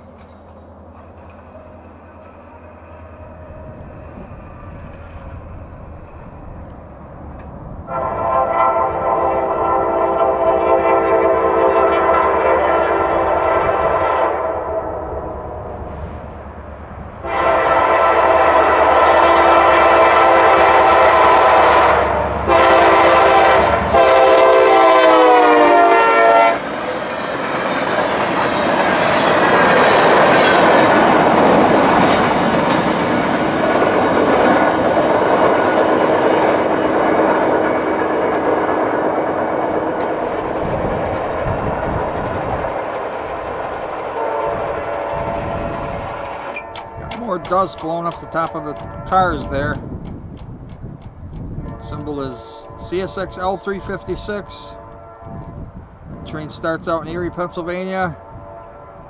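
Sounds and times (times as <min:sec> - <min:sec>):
locomotive air horn blasts: 0:07.9 - 0:15.8, 0:17.2 - 0:26.7, 0:44.1 - 0:49.6, 0:51.6 - 0:55.7, 0:58.1 - 0:59.0
freight cars rumbling and clattering: 0:38.0 - 0:54.4.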